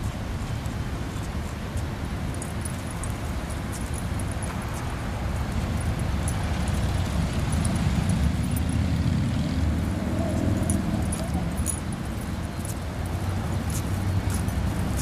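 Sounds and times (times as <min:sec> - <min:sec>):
faint light clinks: 0:10.2 - 0:15.0.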